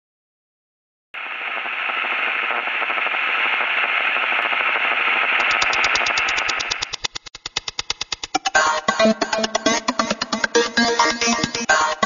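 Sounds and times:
static hiss: 1.2s - 8.4s
fast electronic pulse: 1.2s - 11.9s.

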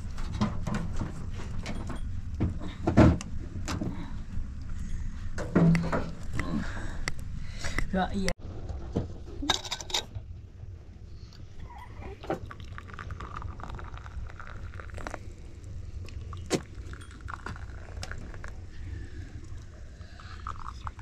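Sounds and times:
dishes clinking: 9.4s - 10.1s.

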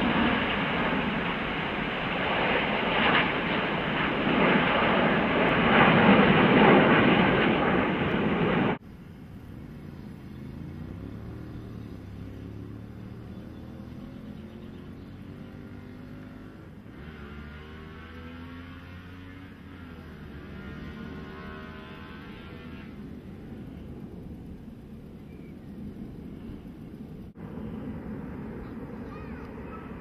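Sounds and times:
jet engines roaring: 0.0s - 14.2s, 19.5s - 30.0s
distant jet hum: 0.0s - 30.0s.

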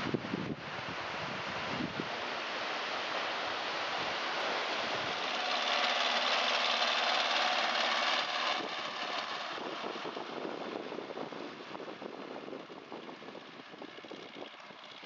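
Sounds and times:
tractor diesel engine: 4.2s - 15.0s.

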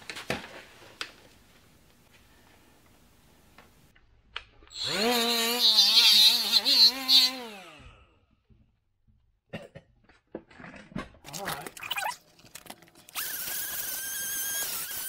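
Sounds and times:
cordless power driver motor: 4.7s - 7.8s, 13.1s - 15.0s.

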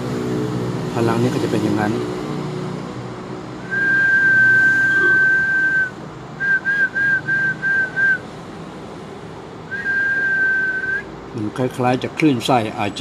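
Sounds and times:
person whistling: 3.6s - 8.2s, 9.7s - 11.1s.

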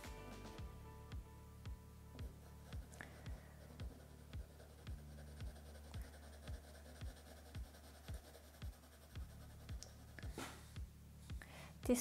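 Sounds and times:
quiet music with soft beat: 0.0s - 12.0s
pencil scratching on paper: 2.2s - 10.8s.

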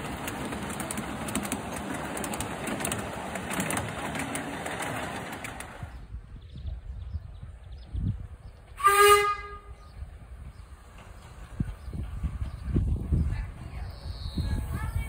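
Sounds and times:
wheels clicking on track: 0.0s - 6.2s, 10.2s - 15.0s
miniature train rolling past: 0.0s - 6.9s, 8.5s - 15.0s.

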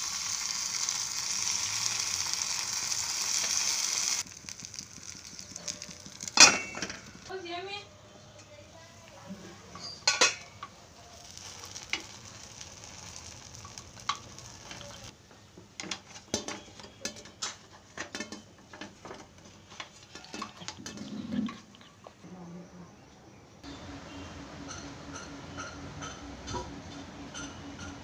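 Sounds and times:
batter sizzling in a pan: 0.0s - 7.3s, 11.0s - 15.1s.

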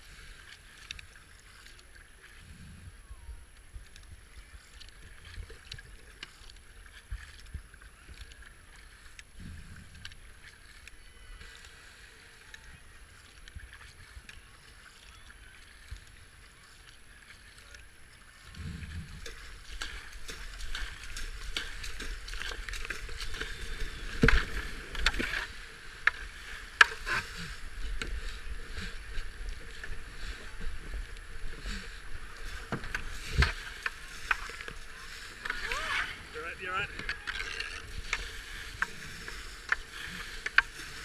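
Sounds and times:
kayak paddle splashes: 0.0s - 41.0s
rushing and splashing water: 3.4s - 41.0s
kayak knocking on weir: 17.6s - 41.0s.

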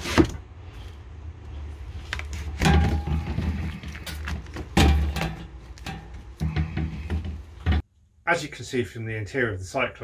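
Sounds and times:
wooden knocks and thuds: 2.6s - 7.9s.

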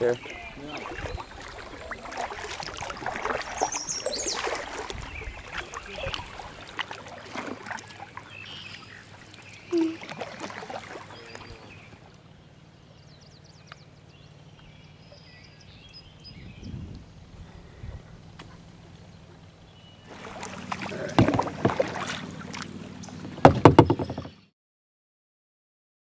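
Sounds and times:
paddle strokes: 0.0s - 12.2s, 20.0s - 24.4s
water rippling and splashing: 0.0s - 24.4s
faint high bird chirps: 8.4s - 10.1s.

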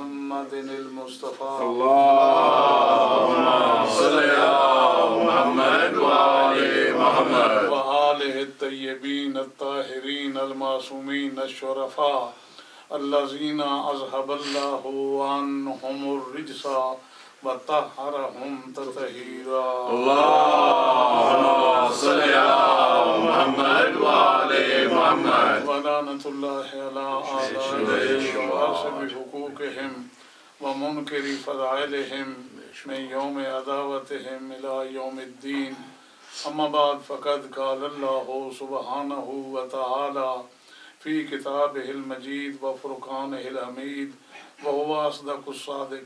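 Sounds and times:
man chanting melodically: 0.0s - 46.0s
voices chanting in unison: 1.6s - 7.8s, 19.8s - 25.8s, 27.2s - 29.3s.

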